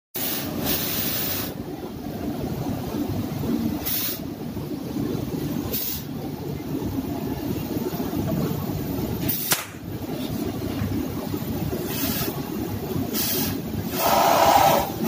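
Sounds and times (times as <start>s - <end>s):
sharp click: 9.5s - 9.8s
gas torch flame rushing: 13.1s - 15.0s.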